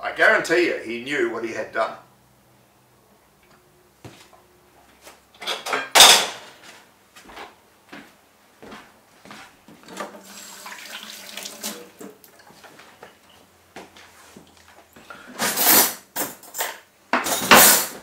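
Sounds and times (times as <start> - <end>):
water splashing: 10.2 - 12.6.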